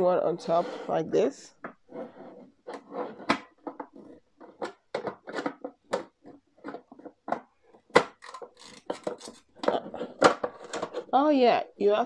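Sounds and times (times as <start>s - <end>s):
plastic knocks and clicks: 2.7s - 11.1s.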